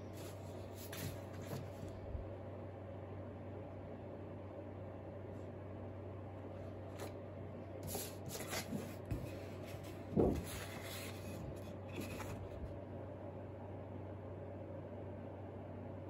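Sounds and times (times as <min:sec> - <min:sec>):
steady low hum: 0:00.0 - 0:16.0
paper rustling and sliding: 0:00.1 - 0:02.0, 0:07.8 - 0:12.7.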